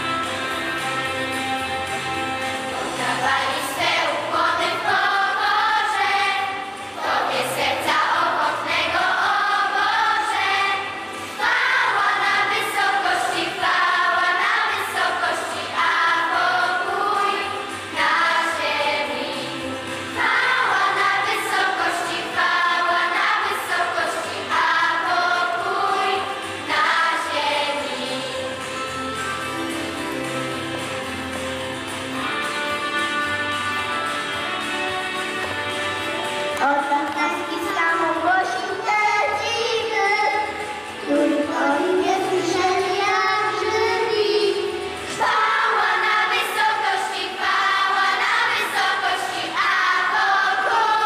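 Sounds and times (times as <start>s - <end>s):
instrumental accompaniment: 0.0s - 51.0s
choir singing a carol: 2.6s - 29.0s, 41.0s - 51.0s.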